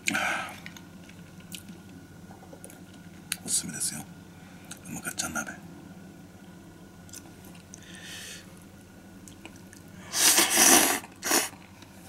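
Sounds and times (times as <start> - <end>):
person chewing: 7.1 - 7.8
noisy slurp: 10.1 - 11.6.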